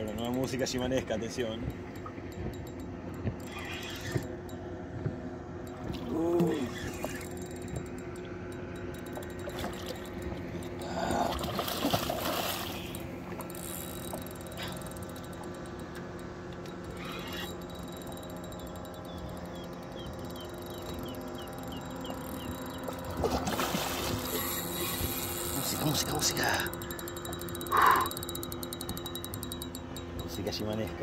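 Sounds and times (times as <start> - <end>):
fishing reel drag buzzing: 2.4 - 4.7, 5.6 - 30.4
water splash: 11.2 - 12.9, 23.3 - 24.3.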